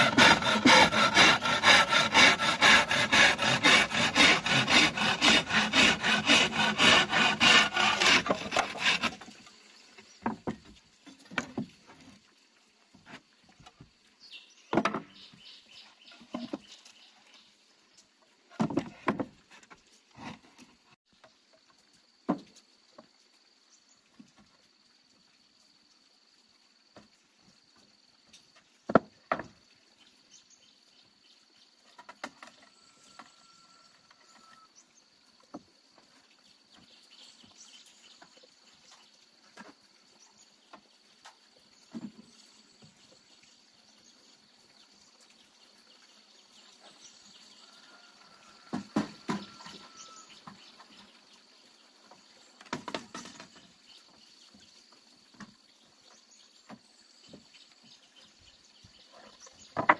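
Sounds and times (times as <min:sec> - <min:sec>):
wooden planks knocking and clattering: 0:10.2 - 0:12.0, 0:14.7 - 0:15.2, 0:18.5 - 0:20.7, 0:28.9 - 0:29.6, 0:52.6 - 0:53.7, 0:59.7 - 0:59.9.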